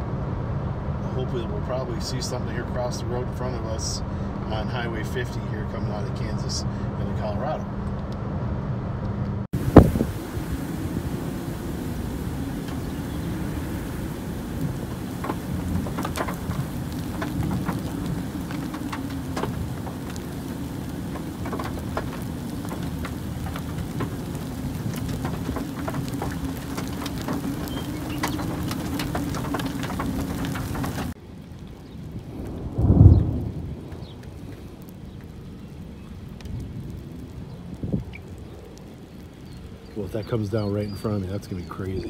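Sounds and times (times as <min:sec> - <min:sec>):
thunder rumble: 0:09.5 - 0:42.0
rain ticking on car roof: 0:09.6 - 0:42.0.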